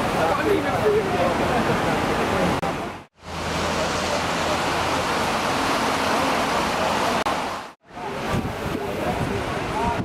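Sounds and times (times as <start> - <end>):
traffic hiss: 1.6 - 9.2.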